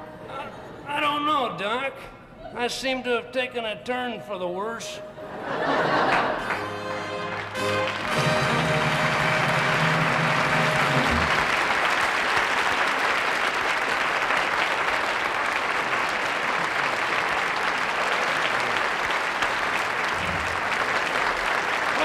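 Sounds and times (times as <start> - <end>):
audience applauding: 5.8 - 22.0
band music: 6.4 - 11.8.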